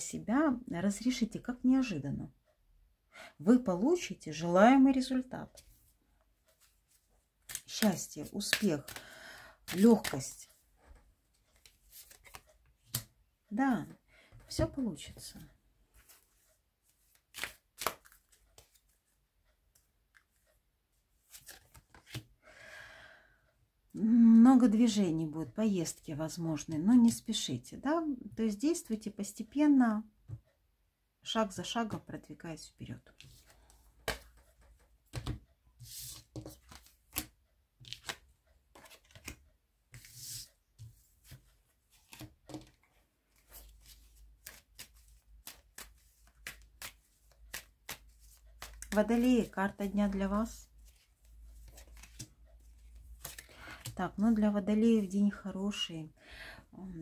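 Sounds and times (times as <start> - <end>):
cards tapping and slapping: 7.5 - 9.0, 17.3 - 18.8, 34.0 - 34.5, 42.0 - 42.8, 43.6 - 49.3, 53.2 - 54.0.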